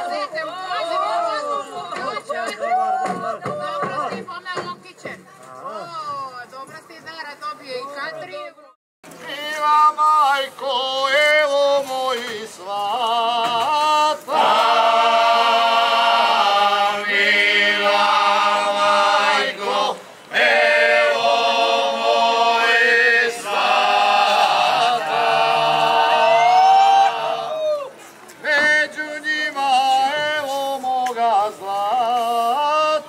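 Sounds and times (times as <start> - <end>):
men singing unaccompanied: 9.2 - 27.6, 28.4 - 33.0.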